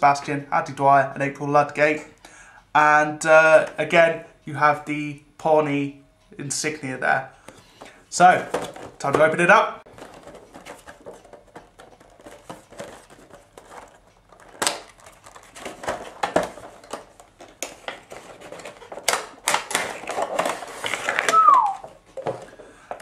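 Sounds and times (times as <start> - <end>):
cardboard and plastic crinkling: 7.7 - 23.0.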